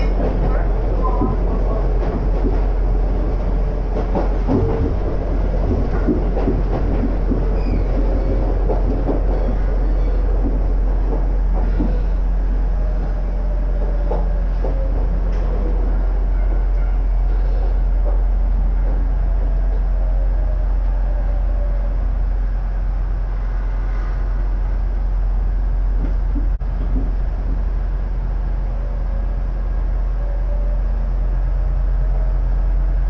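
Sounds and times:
train wheels rumbling on rails: 0:00.0 - 0:33.0
clattering knocks from track: 0:04.0 - 0:09.7, 0:10.4 - 0:12.1, 0:26.0 - 0:27.2.

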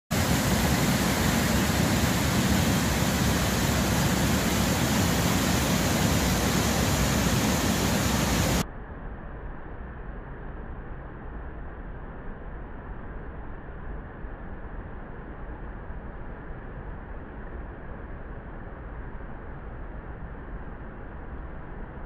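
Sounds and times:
water rushing down river fall: 0:00.1 - 0:08.6.

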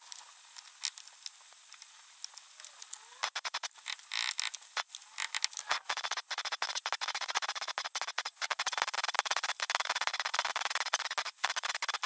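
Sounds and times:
welding arc crackling: 0:03.2 - 0:04.9, 0:05.7 - 0:12.0.

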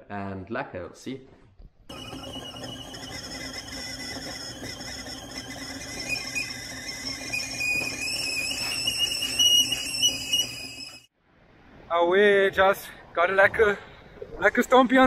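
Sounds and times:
fishing reel drag squealing: 0:01.9 - 0:11.1.

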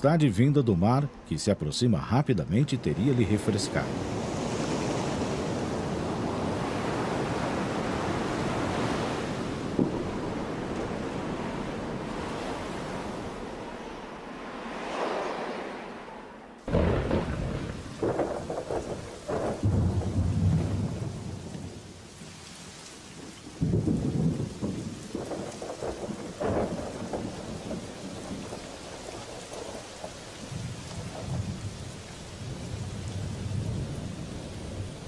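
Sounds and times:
thunder rolling: 0:03.7 - 0:13.3, 0:16.6 - 0:21.9, 0:23.6 - 0:35.0
thunderclap: 0:03.8 - 0:13.3, 0:16.6 - 0:21.9, 0:23.6 - 0:31.8
rain falling on foliage: 0:16.6 - 0:35.0.

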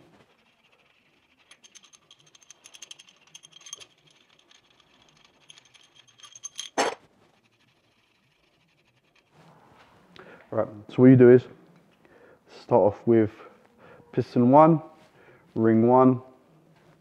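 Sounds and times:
metal studs clinking: 0:01.5 - 0:07.0.

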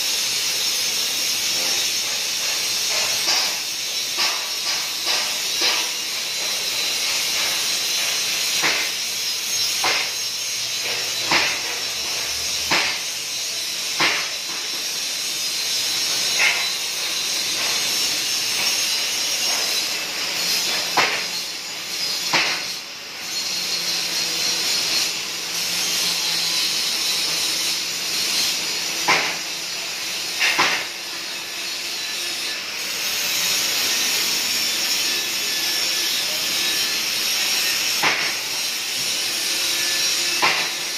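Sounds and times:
welding arc cracks: 0:00.0 - 0:22.8
welding arc hissing: 0:00.0 - 0:40.9.

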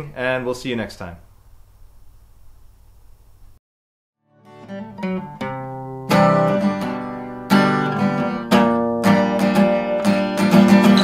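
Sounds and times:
acoustic guitar strumming: 0:04.4 - 0:11.0.

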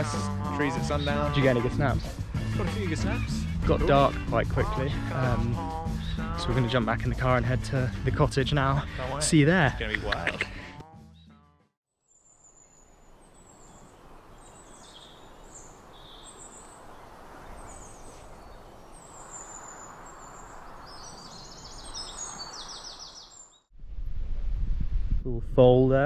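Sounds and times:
trilled bird song: 0:00.0 - 0:02.0, 0:06.0 - 0:06.8, 0:12.0 - 0:23.7
birds chirping: 0:00.0 - 0:11.4, 0:12.1 - 0:23.7
steady outdoor hiss: 0:12.1 - 0:23.4.

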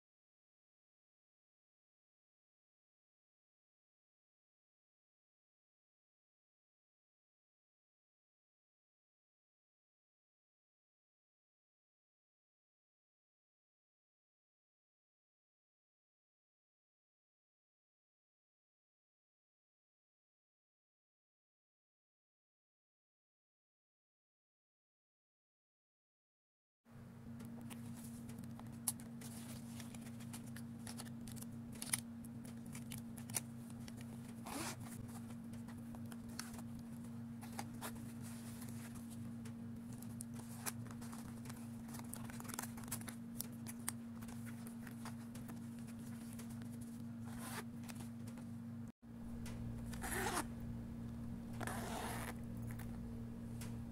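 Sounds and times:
steady low hum: 0:26.9 - 0:53.9
zipper pulled shut: 0:34.4 - 0:35.3, 0:47.2 - 0:48.0, 0:49.9 - 0:50.5, 0:51.5 - 0:52.9.

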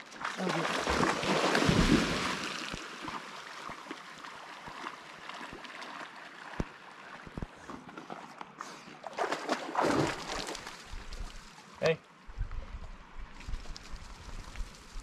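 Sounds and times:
water sloshing as dog swims: 0:00.0 - 0:11.5
dog splashing into water: 0:00.2 - 0:06.8, 0:09.0 - 0:11.3.

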